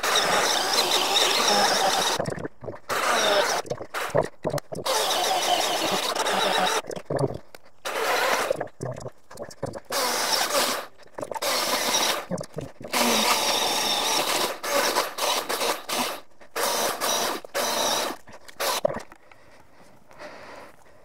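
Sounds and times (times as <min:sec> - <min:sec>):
battery chainsaw running: 0:00.0 - 0:02.2, 0:12.9 - 0:18.8.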